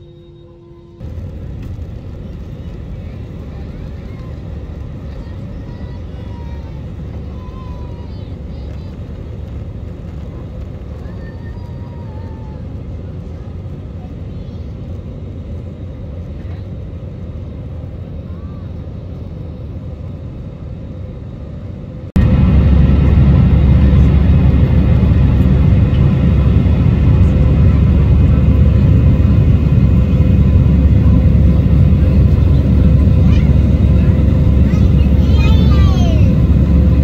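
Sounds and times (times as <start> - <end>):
jet engine and airflow rumble: 0.0 - 37.0.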